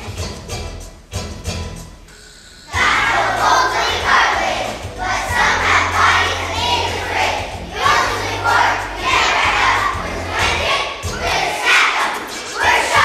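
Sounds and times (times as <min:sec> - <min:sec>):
children singing together: 0:02.7 - 0:13.0
backing track with bass line: 0:02.8 - 0:11.9.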